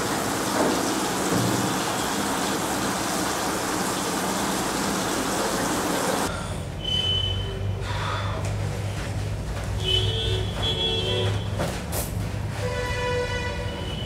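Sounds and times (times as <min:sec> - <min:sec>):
tap water running into sink: 0:00.0 - 0:06.3.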